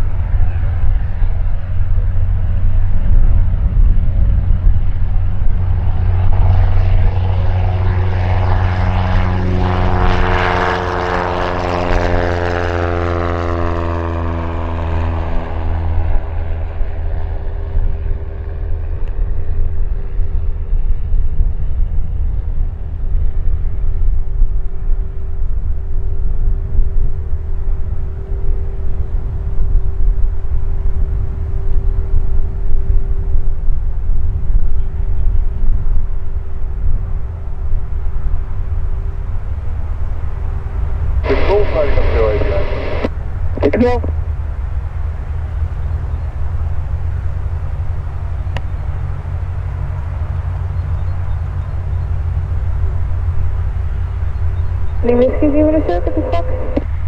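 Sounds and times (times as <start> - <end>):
propeller engine droning: 0.0 - 57.0
steady low rumble: 0.0 - 57.0
passing engine falling in pitch: 5.0 - 20.4.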